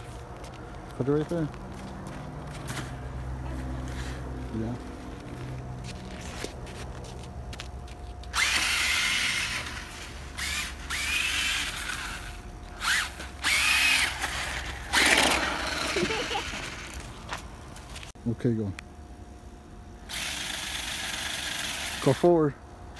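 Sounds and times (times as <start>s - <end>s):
toy truck electric motor whining: 8.3s - 17.0s, 20.1s - 22.2s.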